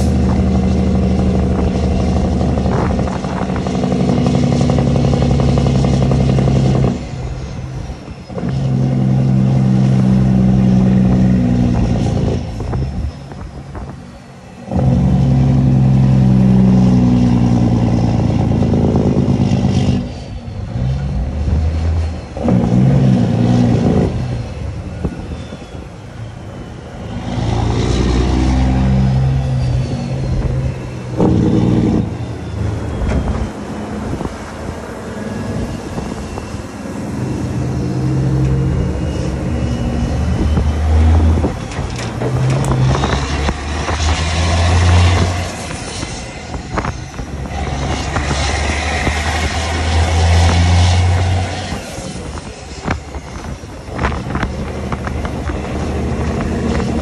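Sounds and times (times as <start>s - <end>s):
diesel truck engine: 0.0s - 57.0s.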